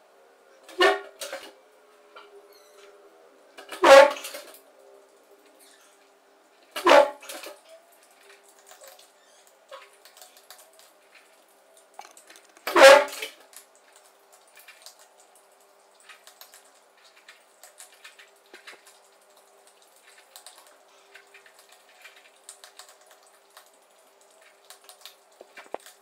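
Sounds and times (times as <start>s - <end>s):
cats crunching dry food: 19.7s - 23.7s.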